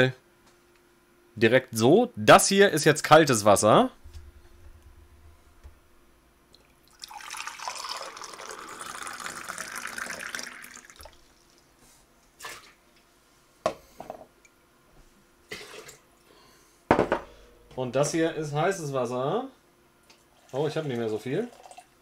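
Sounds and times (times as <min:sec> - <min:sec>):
water pouring into a mug: 0:06.8 - 0:11.6, 0:20.4 - 0:22.0.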